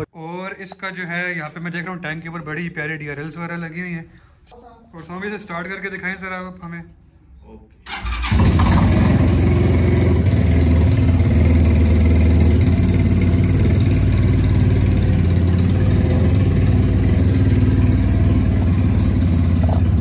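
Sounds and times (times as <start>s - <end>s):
motorcycle engine idling: 7.9s - 20.0s.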